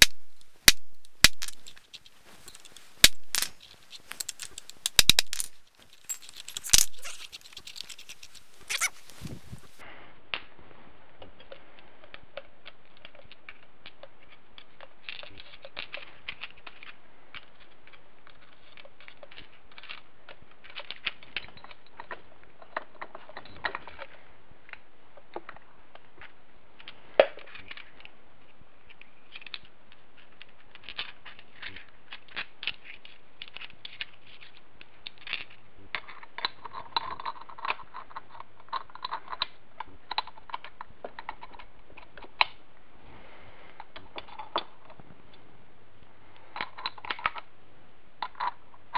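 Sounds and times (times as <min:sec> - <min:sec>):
steel gears clinking: 0:00.0 - 0:09.1.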